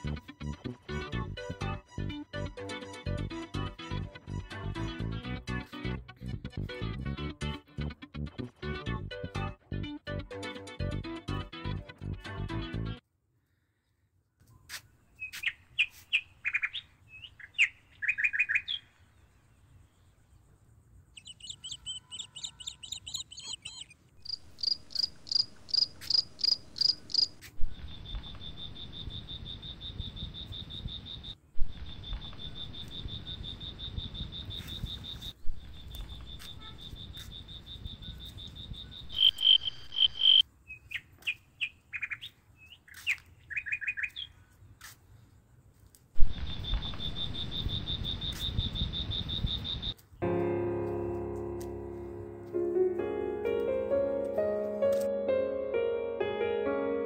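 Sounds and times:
night insects chirping and trilling: 15.1 - 44.4, 45.1 - 50.0.

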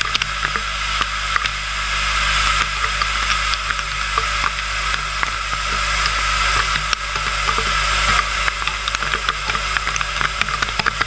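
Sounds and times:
milling machine cutting steel: 0.0 - 11.0
metal chips ticking: 2.4 - 11.0.

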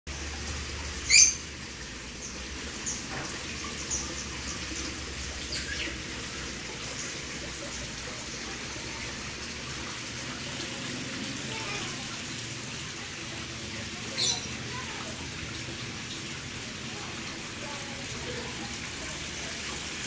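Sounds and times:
small waterfall splashing: 0.1 - 20.0
small birds chirping: 1.0 - 1.5, 3.7 - 6.1, 14.0 - 14.9.

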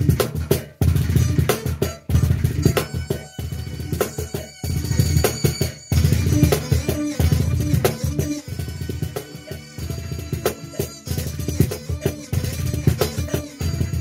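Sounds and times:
cajon played by hand: 0.0 - 14.0
recorded song with plucked strings: 0.0 - 14.0.

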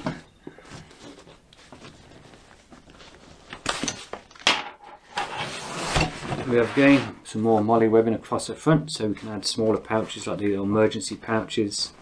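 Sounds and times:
fabric scraping: 5.0 - 7.2.

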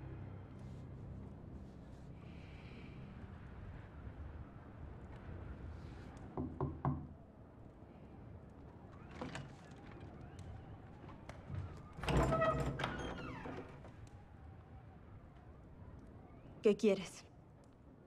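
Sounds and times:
knocks on wooden door: 6.4 - 7.1.

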